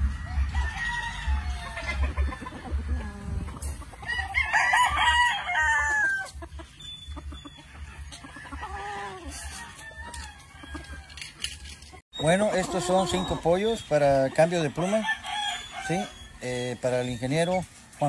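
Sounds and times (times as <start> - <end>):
rooster crowing: 0.0 - 2.3, 4.1 - 6.3, 7.8 - 11.4, 14.7 - 16.4
chicken clucking: 1.7 - 4.3, 6.2 - 15.5.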